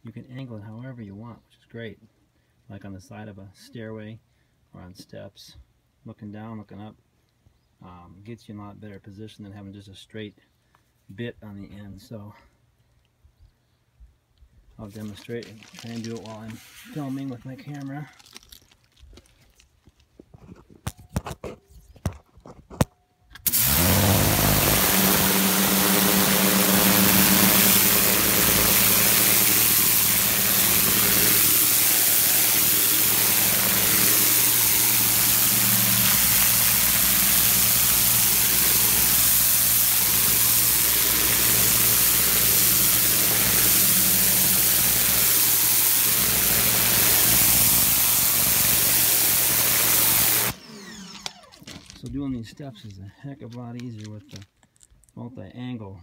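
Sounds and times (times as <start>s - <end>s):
pressure washer motor humming: 23.4s - 51.5s
water jet hissing on stone: 23.5s - 50.6s.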